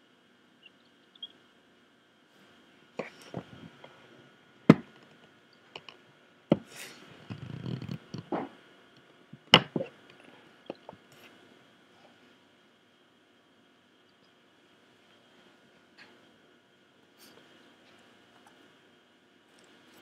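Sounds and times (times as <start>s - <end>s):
faint steady hiss: 0.0s - 20.0s
eagle chicks peeping: 0.6s - 1.4s.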